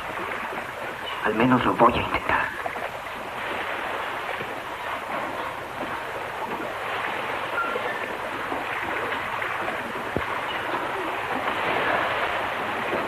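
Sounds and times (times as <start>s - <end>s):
steady rain: 0.0s - 13.0s.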